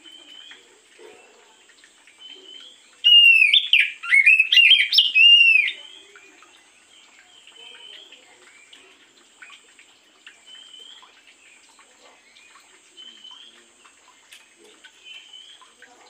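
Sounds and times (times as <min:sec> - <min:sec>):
soft bird chirps: 0:00.0 - 0:16.0
bird whistling phrases: 0:03.0 - 0:05.8.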